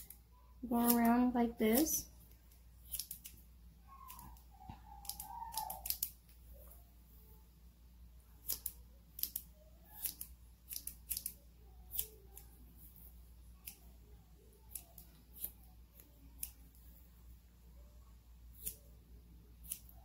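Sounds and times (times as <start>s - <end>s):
small scissors snipping fur: 0.0s - 3.4s, 4.0s - 6.3s, 8.4s - 12.5s, 13.6s - 13.9s, 14.6s - 16.7s, 18.6s - 18.9s, 19.6s - 20.0s.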